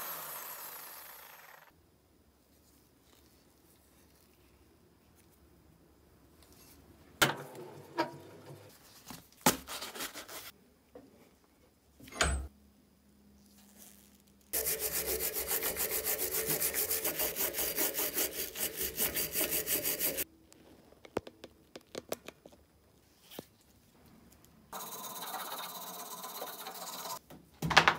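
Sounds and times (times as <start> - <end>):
wire brush scrubbing steel: 14.6 - 20.2, 24.8 - 27.2.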